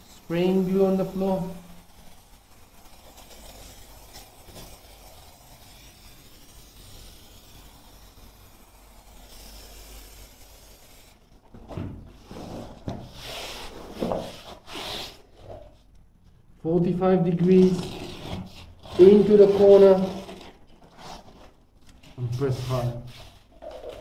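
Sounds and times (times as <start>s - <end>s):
aerosol spray hissing: 0.0s - 11.3s
carpet underlay rubbing and scuffing: 11.9s - 15.9s.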